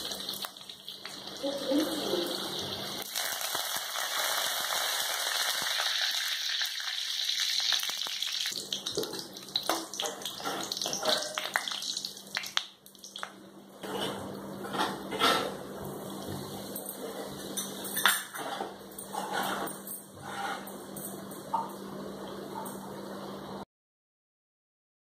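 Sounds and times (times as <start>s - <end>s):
food sizzling in hot oil: 0.0s - 13.3s
ladle scraping pan: 13.8s - 15.6s, 18.4s - 20.7s.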